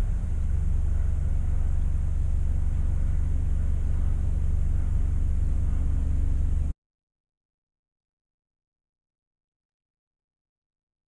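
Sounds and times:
boat engine rumbling: 0:00.0 - 0:06.7.

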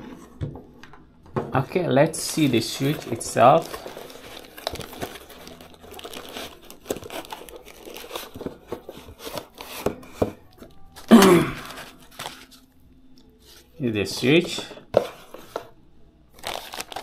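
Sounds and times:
packaging rustling and crinkling: 0:02.1 - 0:12.7, 0:16.4 - 0:17.0.

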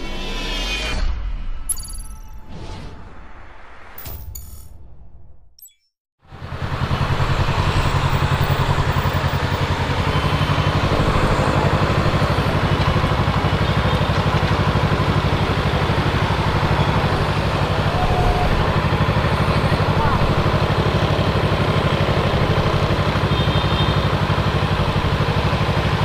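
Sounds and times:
motorcycle engine idling: 0:06.3 - 0:26.0.

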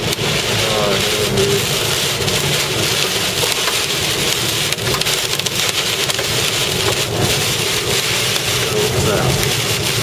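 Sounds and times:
heavy rain and wind on vehicle: 0:00.0 - 0:10.0
rain impacts ticking on vehicle: 0:00.0 - 0:10.0.

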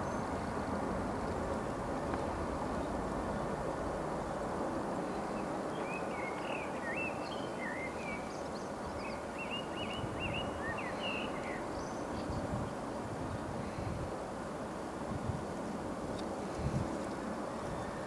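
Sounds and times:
distant jet engines: 0:00.0 - 0:18.0
wind rumble: 0:11.7 - 0:18.0.

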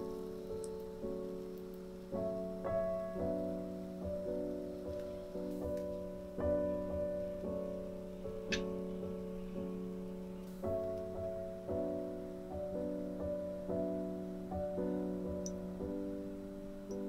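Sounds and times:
soft piano music: 0:00.0 - 0:17.0.

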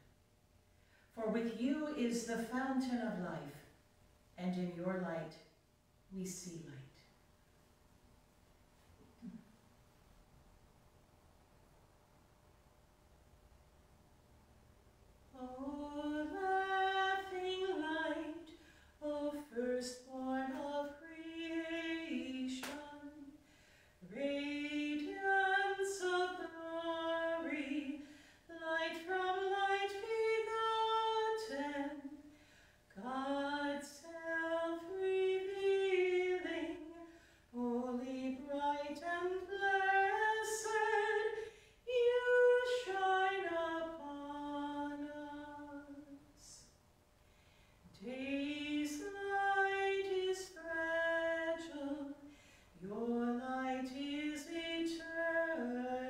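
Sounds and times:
woman singing a hymn: 0:01.2 - 0:03.6, 0:15.3 - 0:23.4, 0:24.0 - 0:32.2, 0:32.9 - 0:46.6, 0:48.0 - 0:56.0.

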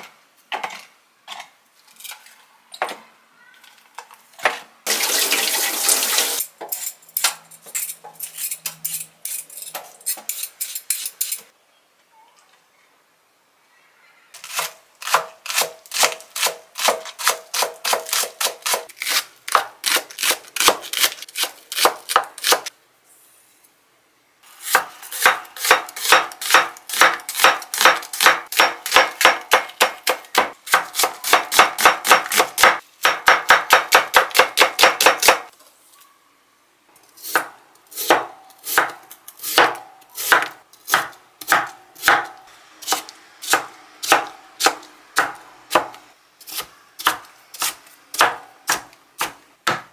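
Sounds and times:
knife chopping on cutting board: 0:37.4 - 0:49.9.

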